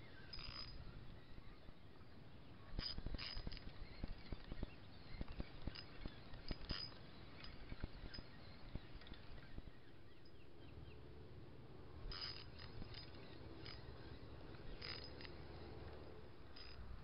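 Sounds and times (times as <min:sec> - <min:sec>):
fishing reel whirring: 0:12.0 - 0:16.9.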